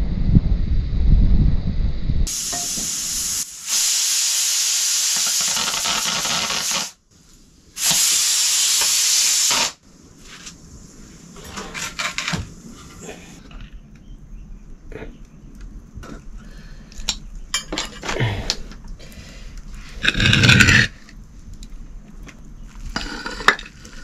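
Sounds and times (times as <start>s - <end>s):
loud steady hiss: 2.3s - 13.4s.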